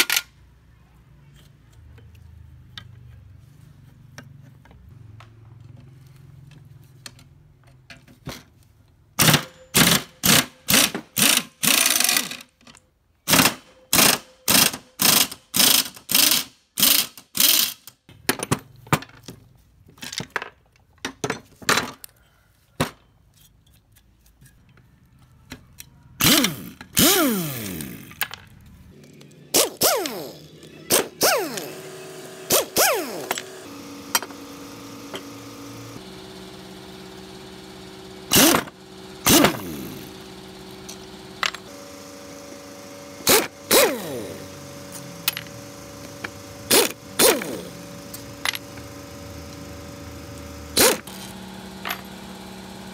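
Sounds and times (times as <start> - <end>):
engine pull-start attempts: 38.3 - 40.1.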